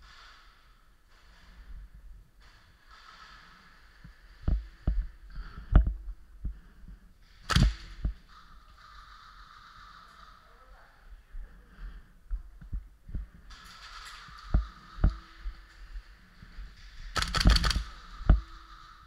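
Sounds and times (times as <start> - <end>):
sharp clicks and knocks: 7.2 - 10.3, 12.3 - 19.0.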